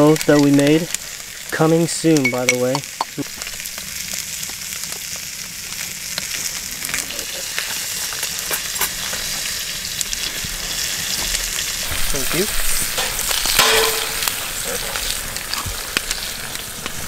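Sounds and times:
fish sizzling in a skillet: 0.0 - 17.0
small pops and crackles: 2.2 - 17.0.

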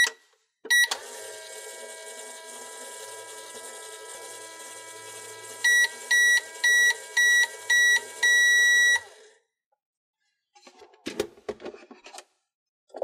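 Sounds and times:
toy microwave humming: 0.7 - 9.4.

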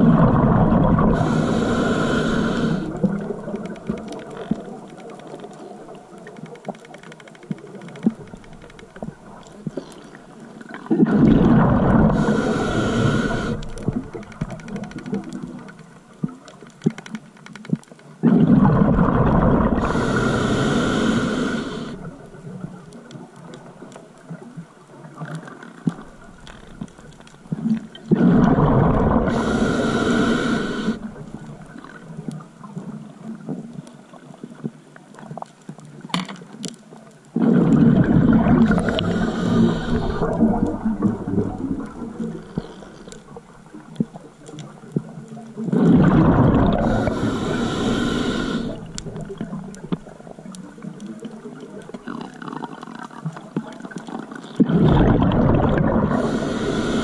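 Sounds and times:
exhaled bubbles rushing: 0.0 - 4.8, 10.6 - 15.7, 18.2 - 20.2, 27.5 - 30.3, 37.4 - 44.8, 45.6 - 50.9, 54.6 - 57.0
diver breathing through regulator: 0.9 - 3.3, 11.1 - 15.7, 19.6 - 22.2, 28.1 - 31.2, 37.4 - 43.4, 45.7 - 49.0, 56.0 - 57.0.

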